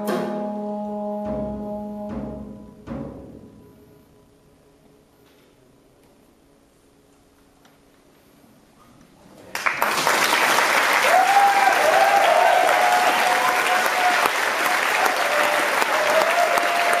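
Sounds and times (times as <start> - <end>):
audience applause: 9.5 - 17.0.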